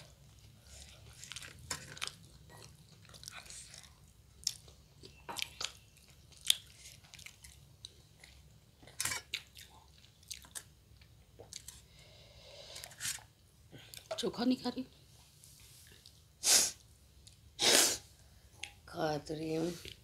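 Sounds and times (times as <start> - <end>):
people chewing: 0.0 - 13.2.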